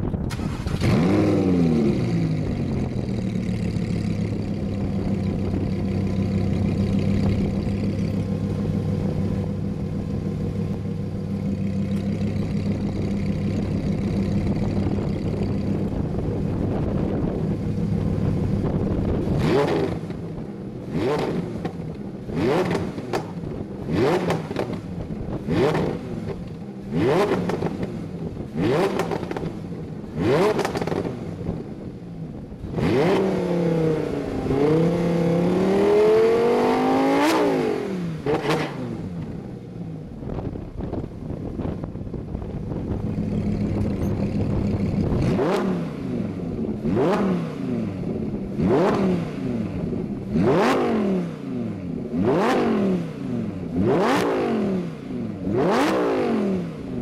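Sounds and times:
car engine revving and idling: 0:00.0 - 0:57.0.

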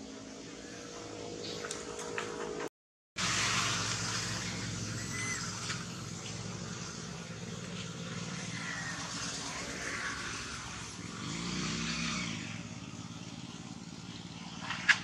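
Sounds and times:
low engine hum: 0:00.0 - 0:15.0
outdoor hiss: 0:03.2 - 0:07.8.

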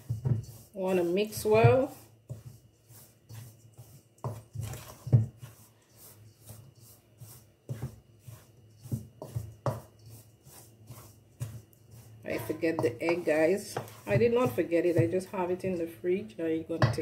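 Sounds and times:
spoon scraping metal bowl: 0:00.0 - 0:15.9.

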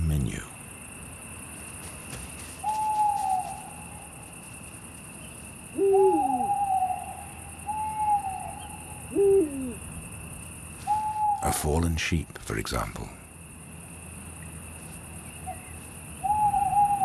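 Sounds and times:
deep owl hoot: 0:02.6 - 0:04.1, 0:05.7 - 0:09.9, 0:10.8 - 0:11.5, 0:15.4 - 0:17.0
owl calling: 0:02.6 - 0:04.1, 0:05.7 - 0:09.9, 0:10.8 - 0:11.6, 0:15.3 - 0:17.0.

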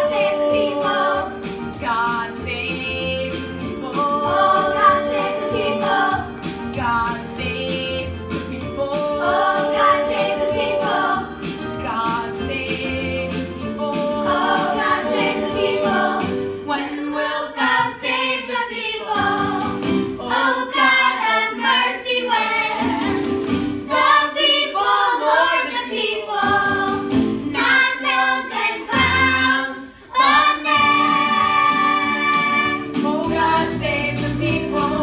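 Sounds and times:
children's chorus singing: 0:03.9 - 0:06.3, 0:14.0 - 0:23.2, 0:23.9 - 0:35.0.

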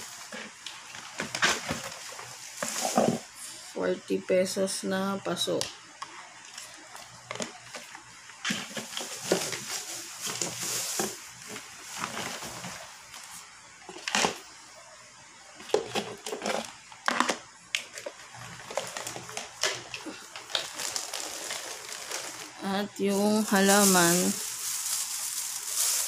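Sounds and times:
plastic bags crinkling: 0:00.0 - 0:03.4, 0:06.5 - 0:13.1, 0:17.8 - 0:26.0.

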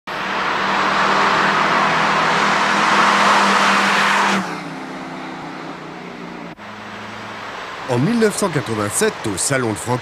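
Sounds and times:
car engine driving past: 0:00.1 - 0:08.0
road and air rush: 0:00.1 - 0:10.0.

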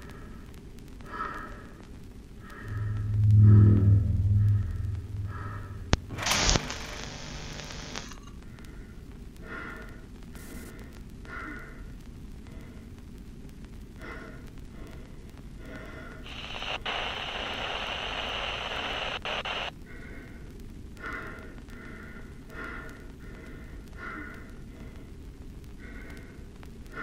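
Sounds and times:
radio static crackling: 0:00.0 - 0:09.5, 0:12.1 - 0:19.9
loud hiss: 0:04.3 - 0:08.2, 0:16.3 - 0:19.7.

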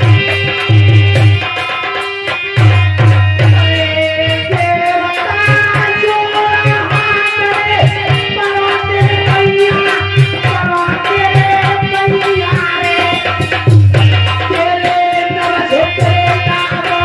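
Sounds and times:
hand drum beating: 0:00.0 - 0:17.0
harmonium chords: 0:00.0 - 0:17.0
woman singing: 0:03.6 - 0:17.0.

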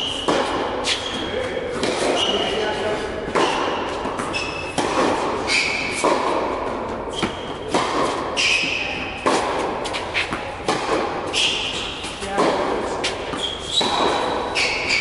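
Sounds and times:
shoe squeaks: 0:00.0 - 0:06.1, 0:07.1 - 0:07.8, 0:08.4 - 0:09.2, 0:11.3 - 0:12.3, 0:13.0 - 0:15.0
balls bouncing on court: 0:00.0 - 0:15.0
tennis balls struck by rackets: 0:00.0 - 0:15.0.

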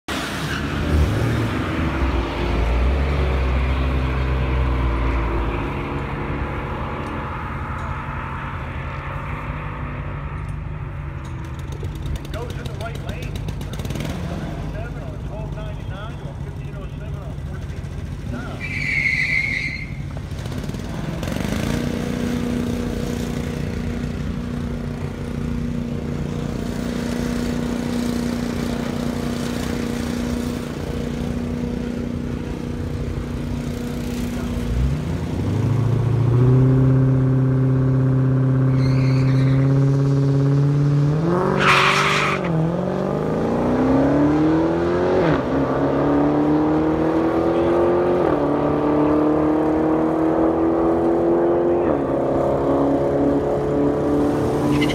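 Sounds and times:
car engine revving: 0:20.1 - 0:54.9
car accelerating hard: 0:33.7 - 0:54.9.

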